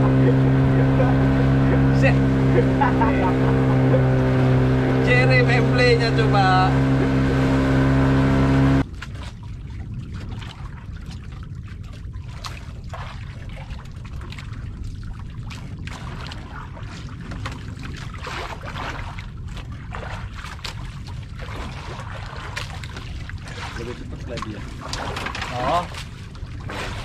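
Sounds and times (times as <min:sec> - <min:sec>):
steady low rumble: 0:00.0 - 0:08.8
boat engine hum: 0:00.0 - 0:08.9
water lapping against hull: 0:00.0 - 0:27.0.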